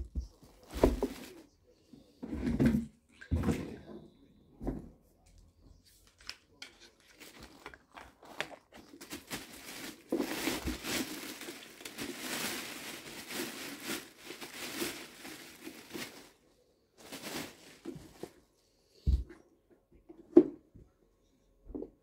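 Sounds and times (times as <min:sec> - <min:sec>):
plastic bag crinkling: 0:07.0 - 0:18.0.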